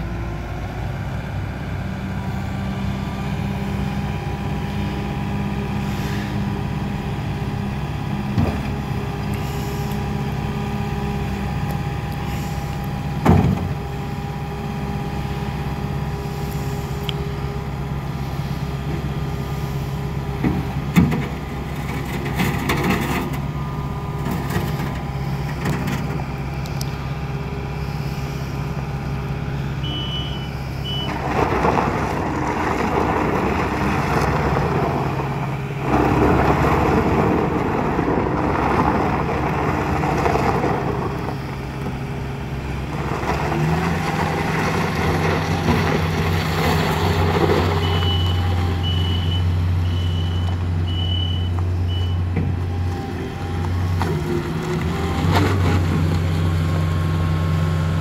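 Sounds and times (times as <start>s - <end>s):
diesel engine running: 0.0s - 58.0s
backup alarm beeping: 29.8s - 31.2s, 47.8s - 52.2s.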